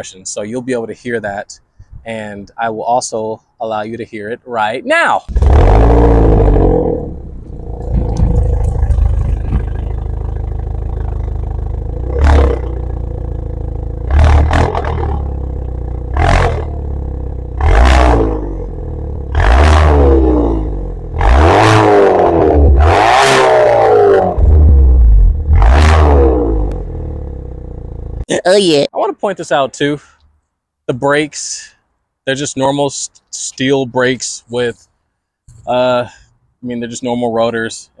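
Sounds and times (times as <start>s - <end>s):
car engine idling and revving: 5.3s - 28.2s.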